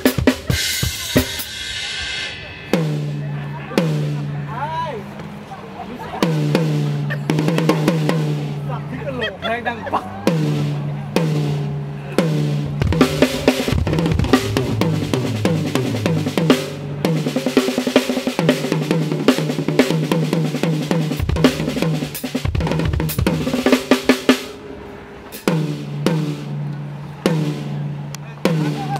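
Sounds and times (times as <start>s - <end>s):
drum kit fills: 0.0s - 4.7s, 6.2s - 8.8s, 10.3s - 28.9s
tom strikes ringing: 12.2s - 17.3s.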